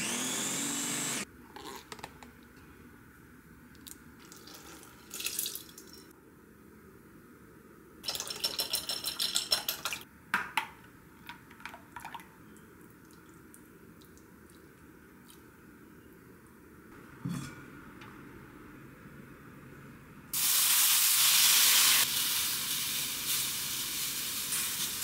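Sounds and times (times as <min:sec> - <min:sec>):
metal spoon clinking against glass: 0:08.1 - 0:10.0.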